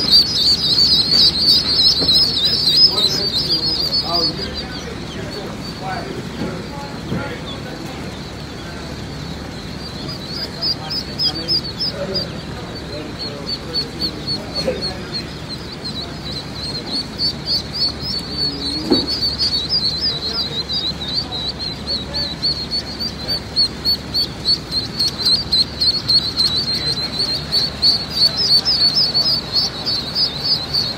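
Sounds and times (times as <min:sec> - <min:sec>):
ducklings peeping: 0:00.0 - 0:30.9.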